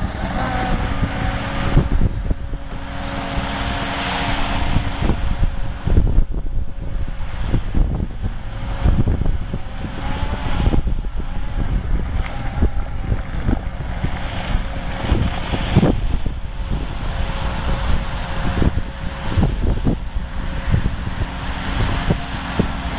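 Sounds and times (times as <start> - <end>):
diesel engine under load: 0.0 - 22.9
mud and water splashing: 0.0 - 22.9
wind buffeting microphone: 0.0 - 22.9.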